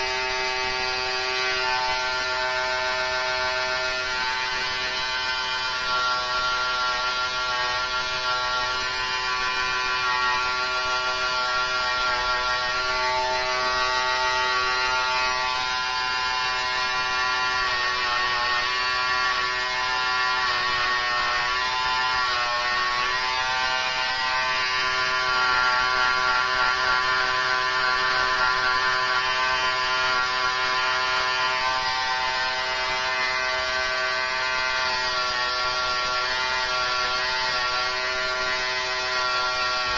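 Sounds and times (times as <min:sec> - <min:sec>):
electric hair clippers buzzing: 0:00.0 - 0:39.9.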